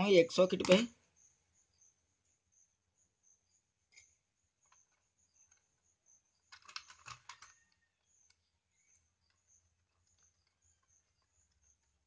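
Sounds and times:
screwdriver metal clicks and scrapes: 6.5s - 8.5s.

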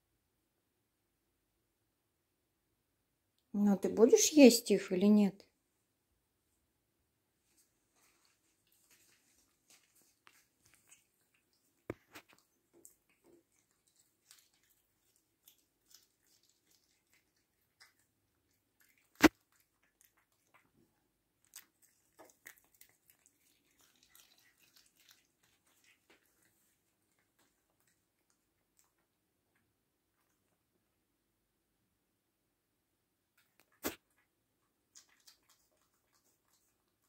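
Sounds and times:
cat chewing with wet crunches: 7.5s - 30.8s, 33.3s - 37.0s.

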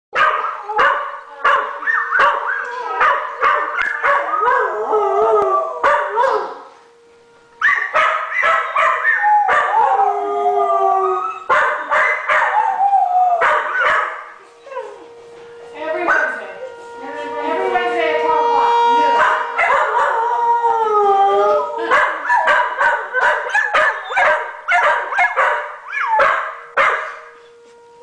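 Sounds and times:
dogs howling: 0.2s - 7.0s, 7.6s - 27.6s
faint siren tone: 0.4s - 28.0s
dogs barking and yipping: 7.6s - 9.8s, 11.5s - 12.6s, 13.4s - 14.2s, 19.2s - 20.1s, 21.9s - 27.2s.

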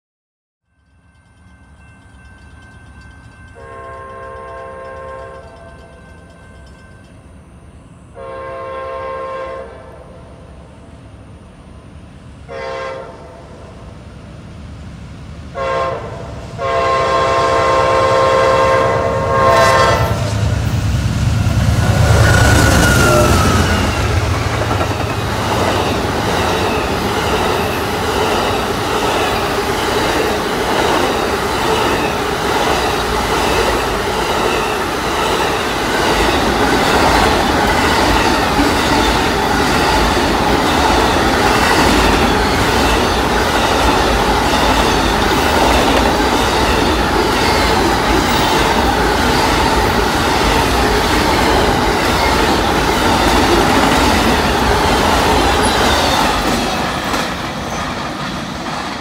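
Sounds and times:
train wheels clicking over rail joints: 22.5s - 59.0s.

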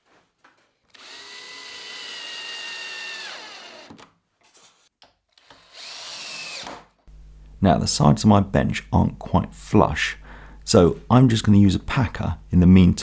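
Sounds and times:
drill driving screws: 0.9s - 4.1s, 5.4s - 6.9s.

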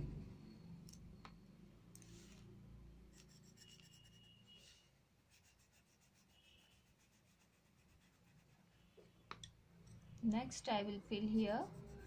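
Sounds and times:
pencil scratching on paper: 3.1s - 4.5s, 5.2s - 9.0s, 11.2s - 12.0s.

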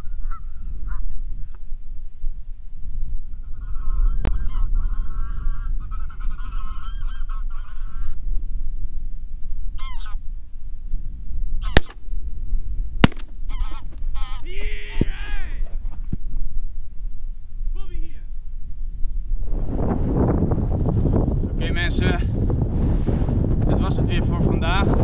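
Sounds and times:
geese honking: 3.6s - 8.2s, 9.8s - 10.2s, 13.5s - 14.5s
shotgun shots: 11.7s - 12.1s, 13.0s - 13.5s.

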